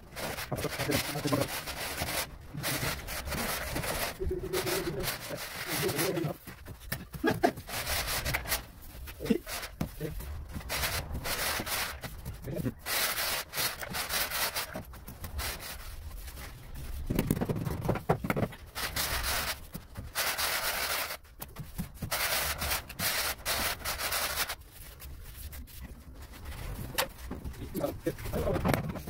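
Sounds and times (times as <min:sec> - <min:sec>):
trowel scraping sand-cement screed: 0:00.0 - 0:06.4, 0:07.2 - 0:09.8, 0:10.5 - 0:15.9, 0:18.8 - 0:21.2, 0:22.0 - 0:24.6.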